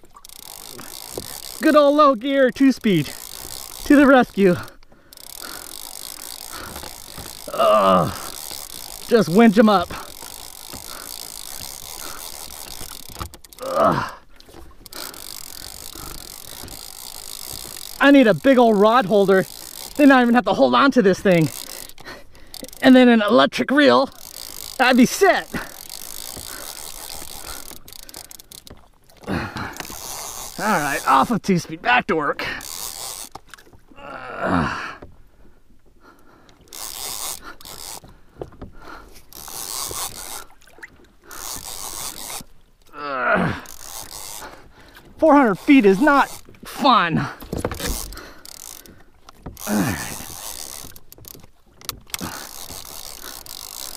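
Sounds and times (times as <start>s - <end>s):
fishing reel cranking: 0.0s - 33.9s, 36.1s - 53.9s
short falling groan: 7.3s - 8.5s
man groaning with effort: 7.4s - 8.4s, 13.6s - 14.2s, 34.0s - 35.0s, 42.9s - 43.7s, 49.6s - 50.3s.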